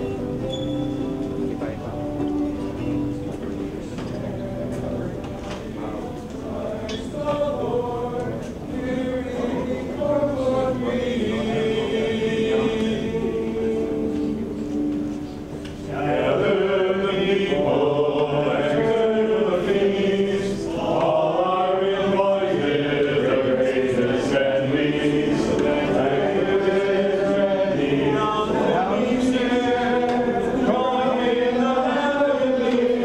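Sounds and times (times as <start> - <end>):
choir singing a chant: 5.8 - 14.6, 15.9 - 33.0.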